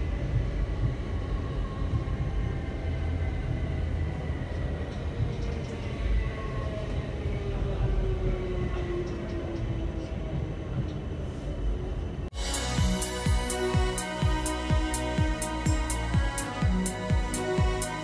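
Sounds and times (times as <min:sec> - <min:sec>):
train wheels rumbling on track: 0:00.0 - 0:12.3.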